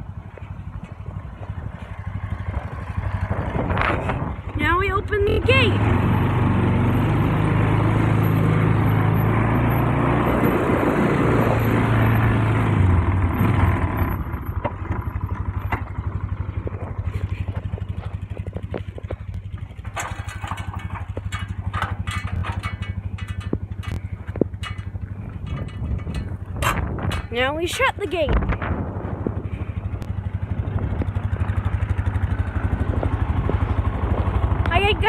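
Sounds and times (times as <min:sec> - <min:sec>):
quad bike engine running: 0:00.0 - 0:35.0
clicks and rattles: 0:17.2 - 0:28.6.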